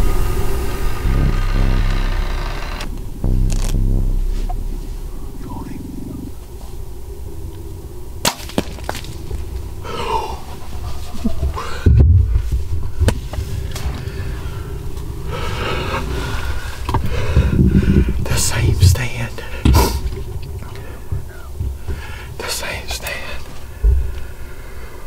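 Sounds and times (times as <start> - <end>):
heavy low thump: 0.0 - 19.0, 23.8 - 24.3
rustling: 0.6 - 18.1.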